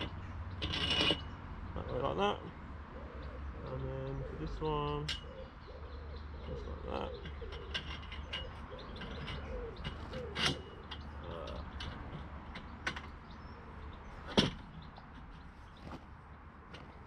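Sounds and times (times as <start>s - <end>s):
pigeon cooing: 1.8s - 11.9s
aluminium tubes knocking together: 7.2s - 13.3s, 14.2s - 16.0s.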